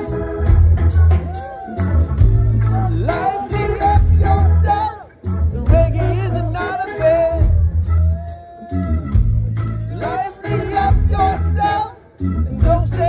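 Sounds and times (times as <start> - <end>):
live rock band: 0.0 - 13.0
person singing: 2.6 - 8.9, 9.8 - 13.0.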